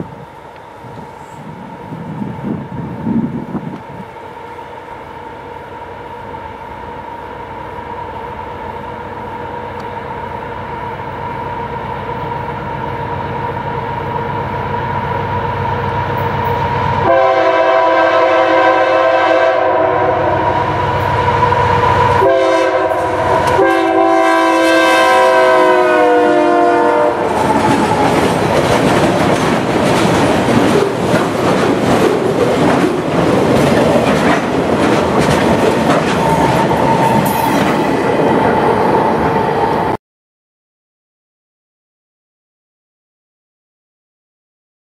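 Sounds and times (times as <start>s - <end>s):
diesel locomotive drone: 0.0s - 40.0s
air horn blasts: 17.0s - 20.7s, 22.2s - 27.3s
train wheels clickety-clack: 27.2s - 39.4s.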